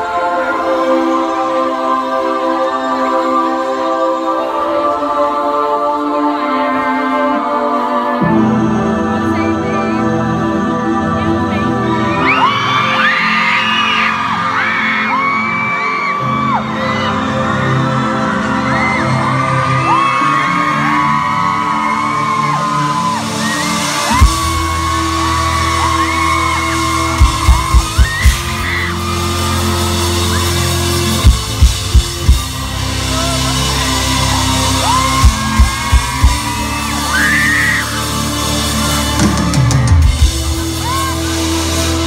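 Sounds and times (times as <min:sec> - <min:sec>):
crowd screaming and whooping: 0:12.0 - 0:42.0.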